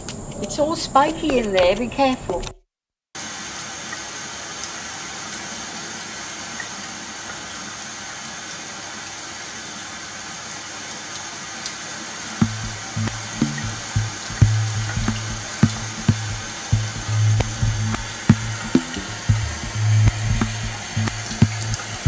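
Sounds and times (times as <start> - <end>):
low hum in short bursts: 12.4 - 22.0
tap water running into steel sink: 12.4 - 22.0.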